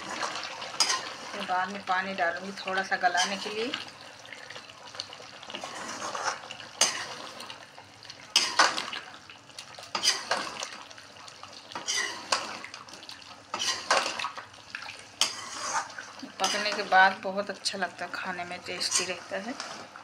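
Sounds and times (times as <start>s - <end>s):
frying hiss: 0.0s - 20.0s
metal spoon scraping metal pan: 0.8s - 1.2s, 3.2s - 3.6s, 11.8s - 12.4s, 13.5s - 14.1s, 15.2s - 16.9s, 18.8s - 19.6s.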